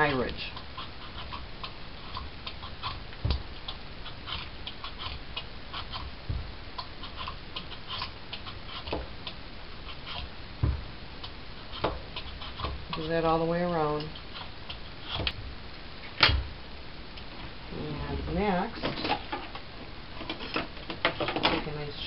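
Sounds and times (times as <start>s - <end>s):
vegetable peeler scraping squash: 0.5s - 6.2s, 6.8s - 10.3s
dull knocks: 6.2s - 6.6s, 10.6s - 10.9s.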